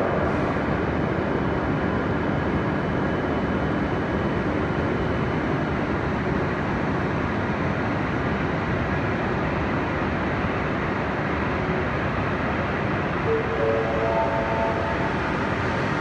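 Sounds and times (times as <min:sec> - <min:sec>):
train running noise: 0:00.0 - 0:16.0
faint high steady tone: 0:13.3 - 0:15.2.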